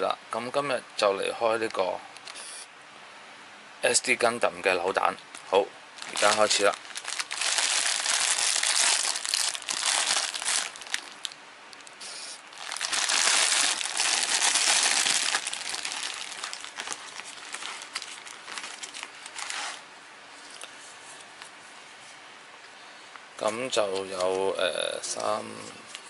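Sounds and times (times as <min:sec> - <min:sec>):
plastic bags crinkling: 0:06.0 - 0:11.9, 0:12.5 - 0:19.8.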